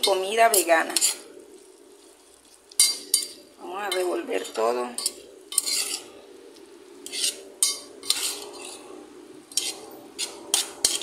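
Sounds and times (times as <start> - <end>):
spoon scraping metal pot: 0.0 - 1.3, 2.7 - 6.2, 7.0 - 8.8, 9.5 - 11.0.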